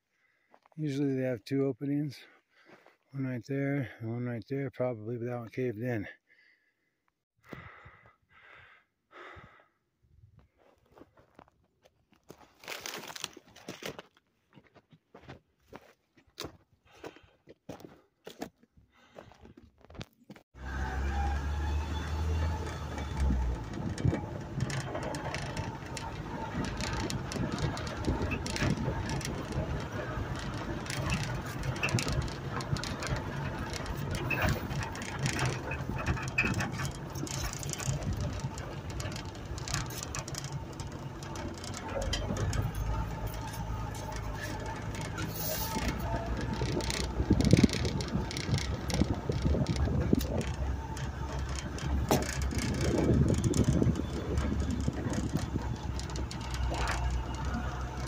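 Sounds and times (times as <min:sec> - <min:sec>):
deep hum: 0:20.6 - 0:58.0
knocks and rattles from bumpy ride: 0:20.6 - 0:58.0
vehicle engine running: 0:20.6 - 0:58.0.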